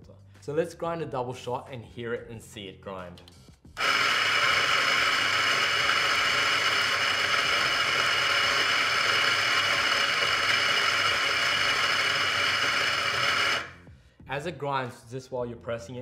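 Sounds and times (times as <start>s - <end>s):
coffee grinder grinding beans: 3.8s - 13.8s.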